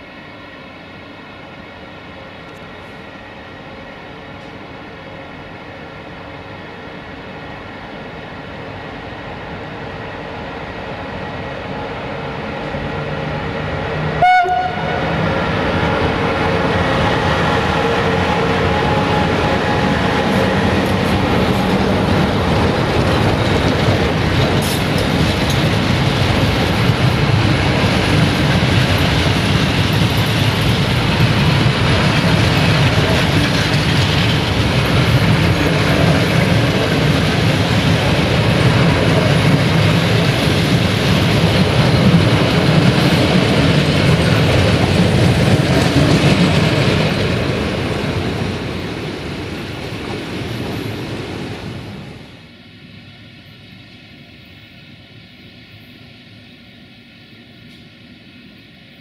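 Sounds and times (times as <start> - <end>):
train rumbling: 0.0 - 59.0
rail clatter: 12.3 - 52.1
train horn blast: 14.1 - 15.2.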